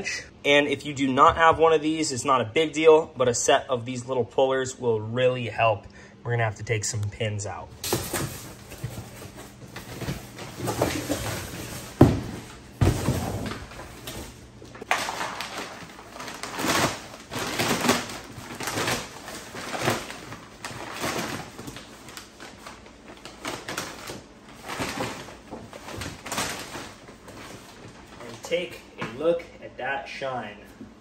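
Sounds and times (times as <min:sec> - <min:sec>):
cardboard rustling and scraping: 0:07.8 - 0:15.5
cardboard box thumps: 0:10.0 - 0:13.8.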